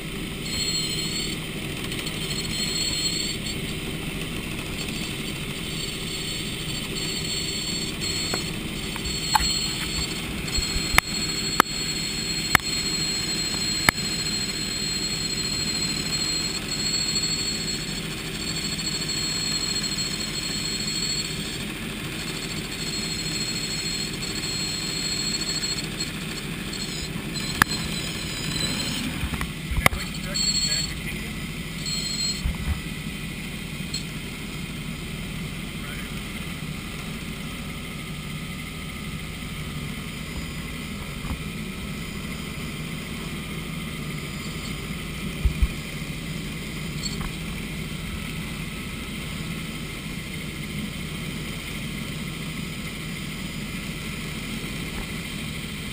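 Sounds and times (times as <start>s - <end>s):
constant high whine: 0.0s - 55.9s
helicopter engine and rotor drone: 0.0s - 55.9s
sharp clicks: 8.2s - 11.8s, 12.5s - 12.7s, 27.4s - 30.0s.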